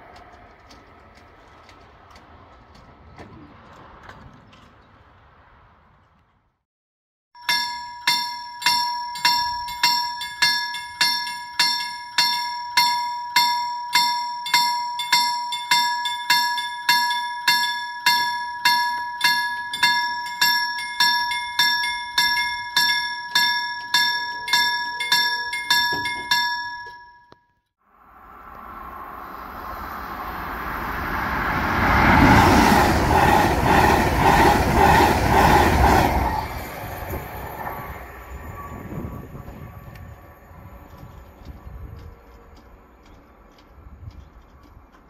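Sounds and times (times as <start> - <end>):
approaching train: 0.0 - 6.6, 27.8 - 45.0
level crossing bell ringing: 7.4 - 27.6.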